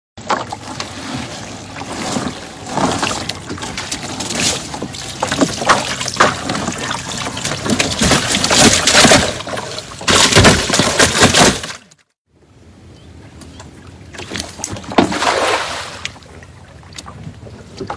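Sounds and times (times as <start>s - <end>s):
water pouring and splashing off net: 0.2s - 11.6s, 14.2s - 16.3s.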